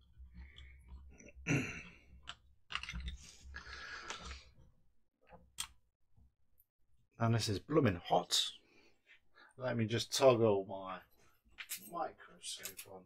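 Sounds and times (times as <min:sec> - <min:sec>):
plastic housing clicks and rustling: 0:02.2 - 0:03.2.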